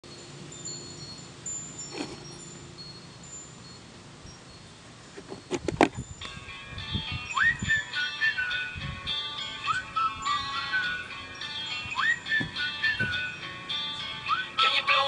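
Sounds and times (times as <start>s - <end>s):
faint high tinkling tones: 0.0s - 14.6s
music: 6.1s - 15.0s.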